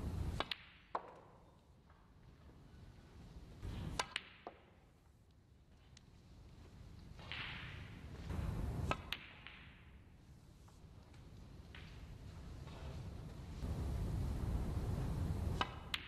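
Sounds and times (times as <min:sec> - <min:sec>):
snooker balls clicking: 0:00.2 - 0:02.6, 0:03.3 - 0:05.0, 0:05.8 - 0:13.6.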